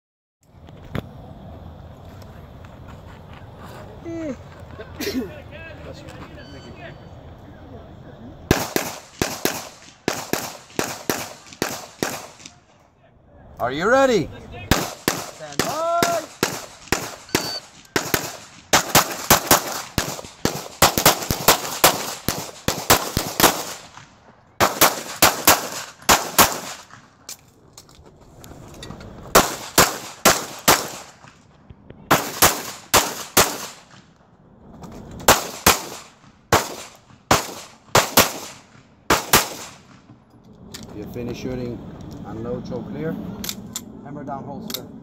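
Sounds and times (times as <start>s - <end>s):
rapid pistol shots: 8.5s - 12.6s, 14.7s - 27.0s, 29.4s - 31.4s, 32.1s - 34.0s, 35.3s - 40.0s.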